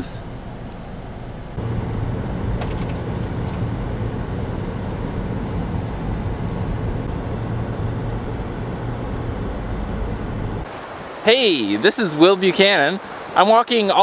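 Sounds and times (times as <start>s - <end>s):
vehicle engine hum: 0.0s - 10.7s
tyre road noise: 0.0s - 14.0s.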